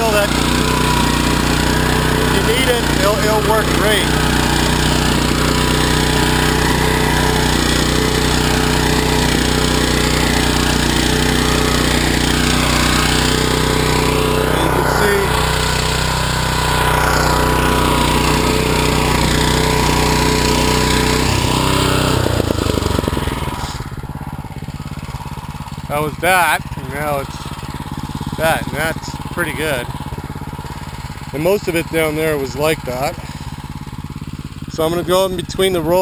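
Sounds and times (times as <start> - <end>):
small tractor engine running: 0.0 - 36.0.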